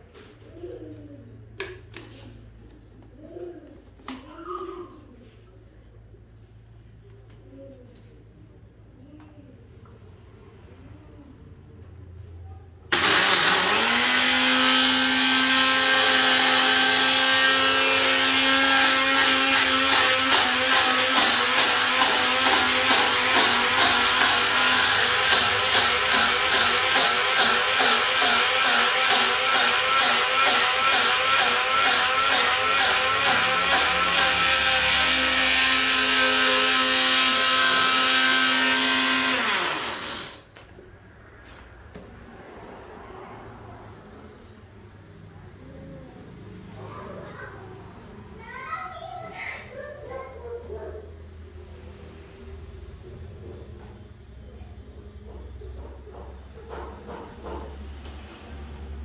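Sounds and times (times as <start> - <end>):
blender grinding eggshells: 12.9 - 40.5
electric blender motor whining: 12.9 - 40.5.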